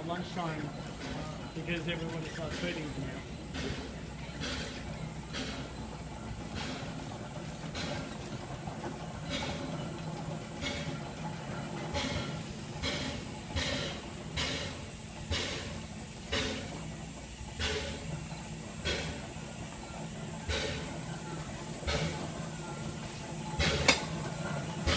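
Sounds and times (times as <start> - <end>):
steam exhaust chuffs: 0.0 - 24.9
steam locomotive rumble: 0.0 - 24.9
steam hiss: 11.6 - 24.9.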